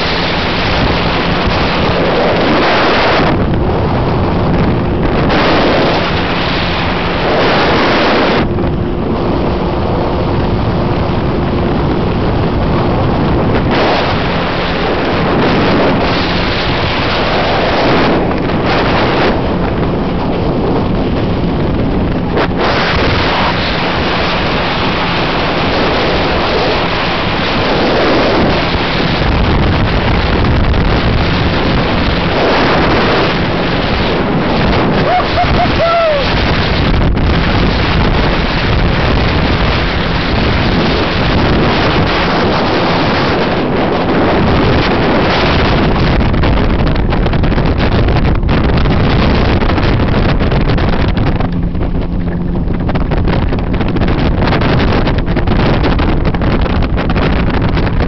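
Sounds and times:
motorboat engine hum: 0:00.0 - 0:58.0
water rushing and spray: 0:00.0 - 0:58.0
wind noise on microphone: 0:00.0 - 0:58.0.

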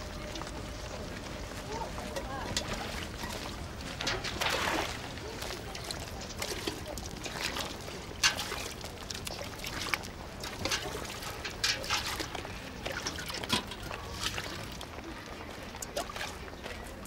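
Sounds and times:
water splashing into buckets: 0:00.0 - 0:17.0
metal pails clinking: 0:03.9 - 0:04.9, 0:06.3 - 0:14.7.

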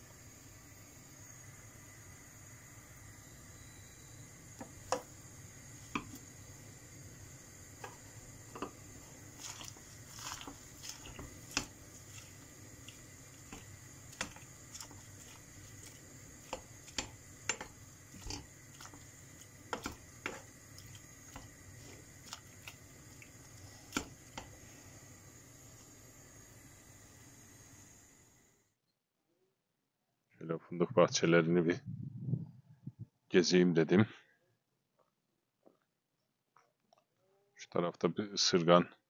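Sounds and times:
wooden spoon knocking on pot: 0:07.8 - 0:08.8, 0:13.4 - 0:15.0, 0:16.4 - 0:19.0, 0:19.7 - 0:20.5
wet squishing of leaves: 0:09.4 - 0:13.0, 0:14.1 - 0:16.0, 0:21.8 - 0:23.2.

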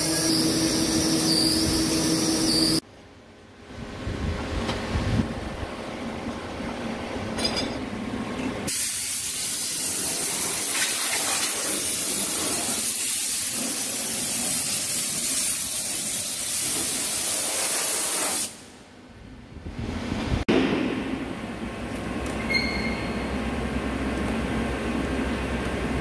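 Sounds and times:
machine shop hum: 0:00.0 - 0:08.8, 0:18.8 - 0:26.0
compressed air hissing from blow gun: 0:08.7 - 0:18.7.

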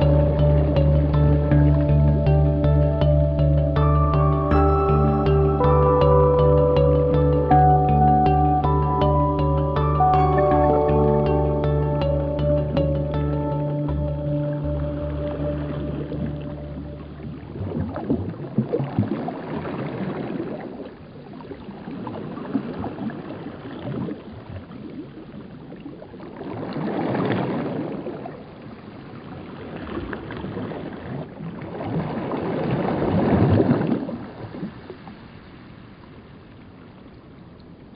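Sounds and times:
water lapping and sloshing: 0:14.3 - 0:37.9.

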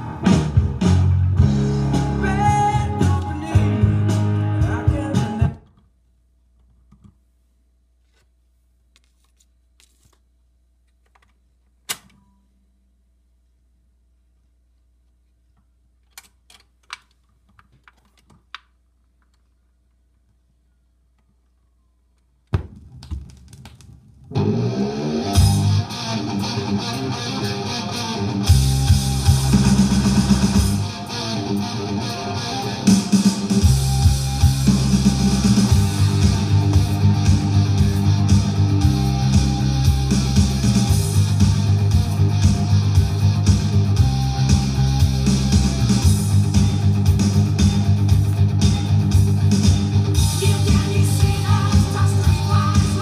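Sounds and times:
guitar-led music from vinyl: 0:00.0 - 0:05.6, 0:24.3 - 0:53.0
record needle clicks: 0:10.8 - 0:12.2, 0:15.0 - 0:19.5, 0:22.2 - 0:24.4
record changer mechanism clicks: 0:11.1 - 0:12.2.

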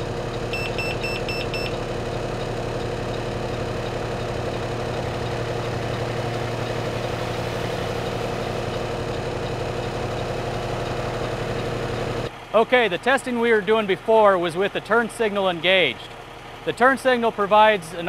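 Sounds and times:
rapid high beeping: 0:00.0 - 0:12.3
diesel engine idling: 0:00.0 - 0:18.0.

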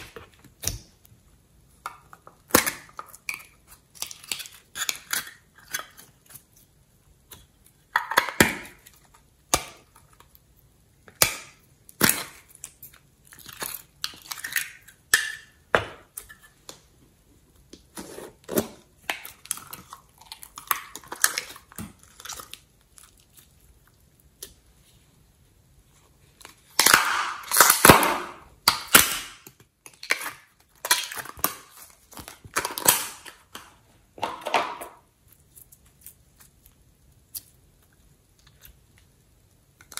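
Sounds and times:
slime squishing and crackling: 0:18.6 - 0:24.5.

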